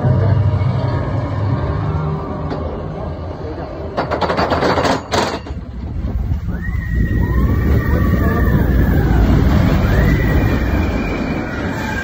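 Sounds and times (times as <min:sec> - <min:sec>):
roller coaster rumble: 0:00.0 - 0:12.0
high drawn-out squeal: 0:06.4 - 0:12.0.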